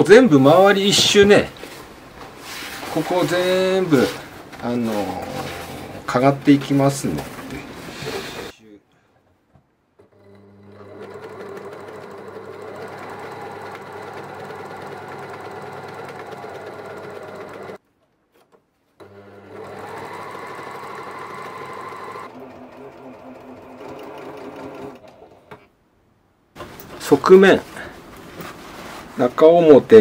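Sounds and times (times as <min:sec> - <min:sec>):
overlock sewing machine running: 0:10.1 - 0:17.8, 0:19.0 - 0:25.4.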